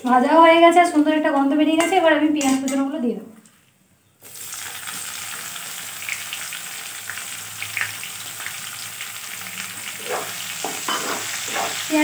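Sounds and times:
onions sizzling in hot oil: 4.2 - 12.0
metal spatula scraping a pan: 10.0 - 11.9.

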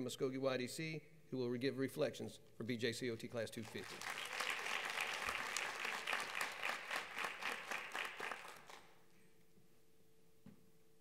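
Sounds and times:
faint steady hum: 0.0 - 11.0
audience applauding: 3.7 - 9.0.

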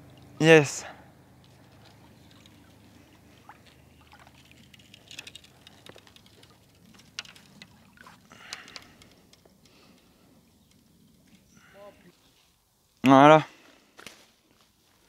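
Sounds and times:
water splashing and trickling: 0.0 - 0.7, 1.3 - 10.1
light clicks and knocks: 4.2 - 7.8.

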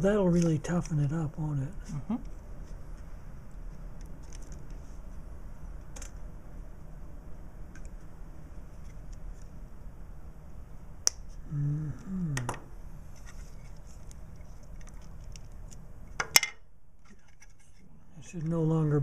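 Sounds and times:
voice murmuring: 11.4 - 12.6.

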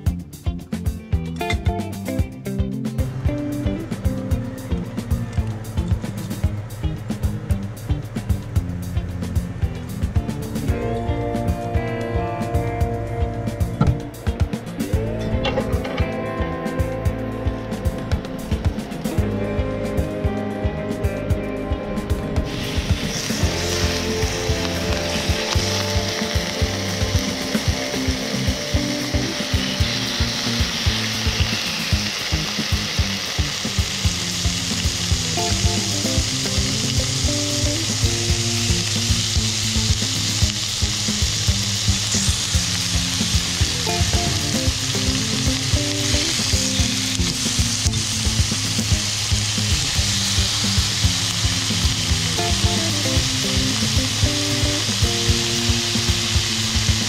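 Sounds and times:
background music with steady beat: 0.0 - 57.0
meat sizzling in hot oil: 22.5 - 57.0.

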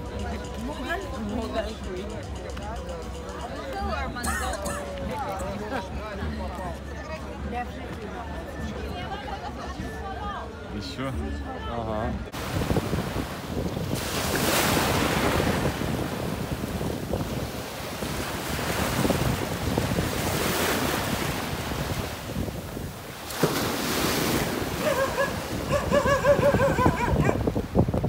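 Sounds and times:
wind buffeting microphone: 12.1 - 28.0
sea waves breaking on rocks: 12.3 - 26.2.

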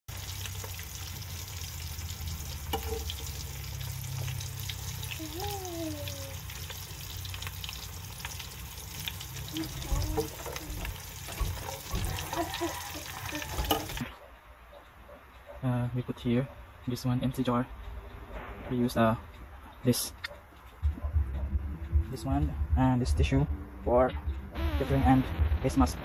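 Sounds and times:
oil sizzling and crackling: 0.0 - 14.1.

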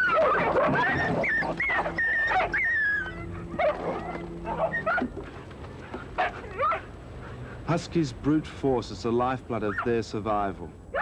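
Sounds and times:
dogs whining: 0.0 - 7.4
dogs yelping: 0.0 - 7.6, 9.6 - 10.0.

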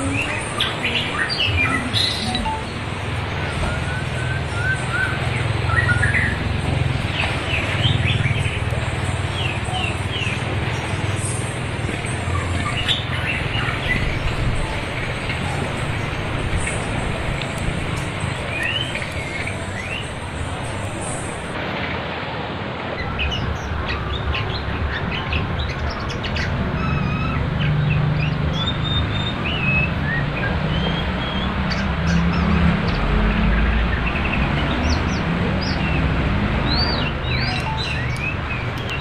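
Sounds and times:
river water rushing: 0.0 - 39.0
songbird whistles and chirps: 0.6 - 2.7.

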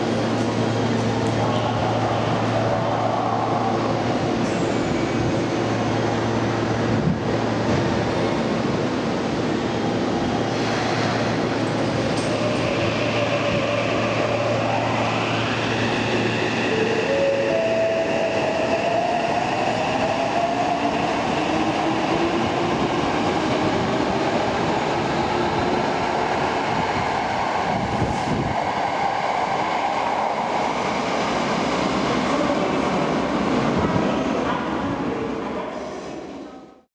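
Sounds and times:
train wheel and running noise: 0.0 - 17.2.

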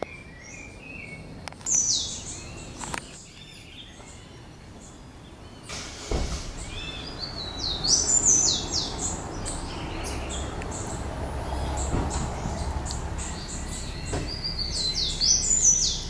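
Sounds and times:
small birds chirping: 0.0 - 16.0
steady background noise: 0.0 - 16.0
dull thump: 6.0 - 6.6, 11.8 - 12.8, 14.0 - 14.5.

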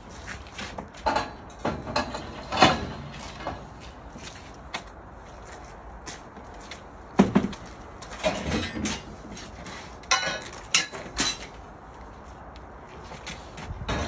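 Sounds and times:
metal scaffold parts clanking: 0.4 - 4.2, 7.2 - 11.7, 13.3 - 14.0.

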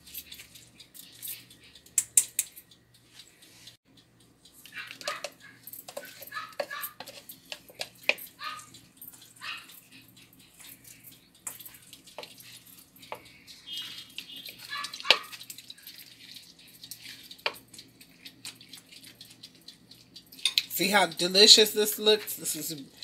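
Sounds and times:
wooden spoon knocking metal strainer: 4.9 - 8.2.

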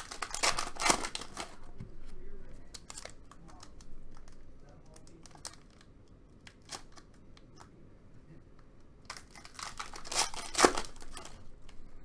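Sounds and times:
wrapper tearing and crackling: 0.0 - 1.7, 2.7 - 7.1, 9.0 - 11.5.

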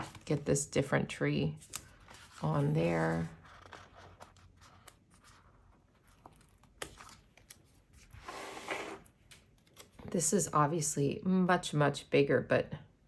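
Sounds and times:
paper rustling: 1.6 - 10.1.

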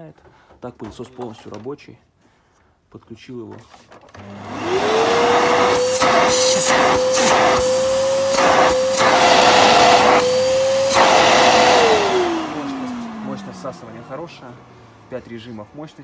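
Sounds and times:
vacuum cleaner motor whine: 4.2 - 15.6.

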